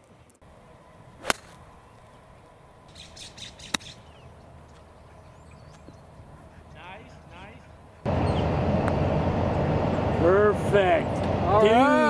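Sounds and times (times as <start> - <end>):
birds chirping: 0.0 - 11.8
golf club striking ball: 1.2 - 1.6.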